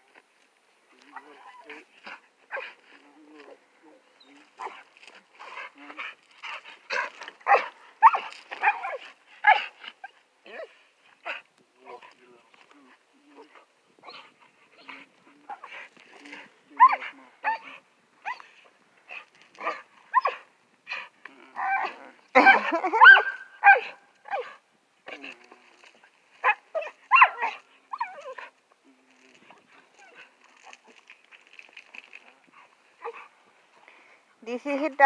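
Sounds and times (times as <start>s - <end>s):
dog whining and yipping: 6.4s - 9.7s, 14.0s - 15.0s, 16.8s - 20.4s, 21.6s - 24.5s, 26.4s - 28.5s.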